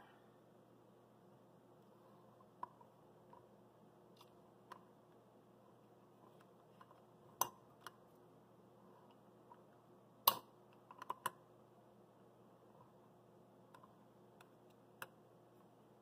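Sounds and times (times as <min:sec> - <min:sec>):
faint plastic clicks and taps: 0:13.7 - 0:15.7.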